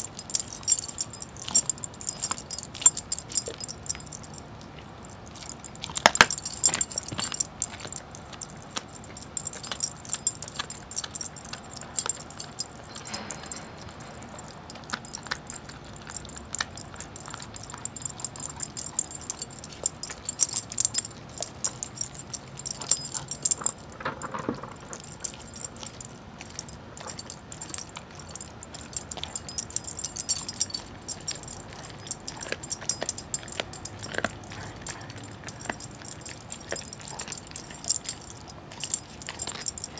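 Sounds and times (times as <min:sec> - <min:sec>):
collar tags jingling: 0:00.0 - 0:39.9
dog gnawing and chewing bone: 0:00.0 - 0:39.9.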